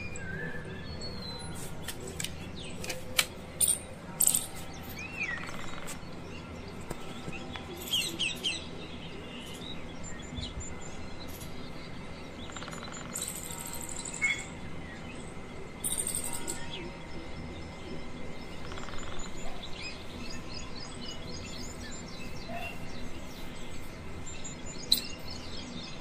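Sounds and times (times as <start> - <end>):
faint outdoor background hiss: 0.0 - 26.0
bird trill: 7.7 - 17.7, 18.4 - 26.0
birds chirping and calling: 15.8 - 26.0.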